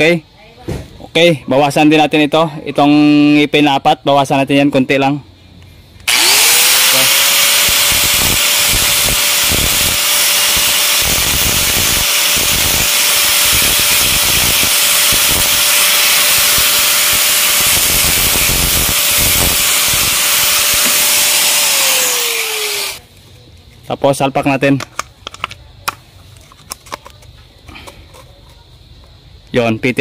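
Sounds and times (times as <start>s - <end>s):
angle grinder grinding plastic: 6.0s - 23.0s.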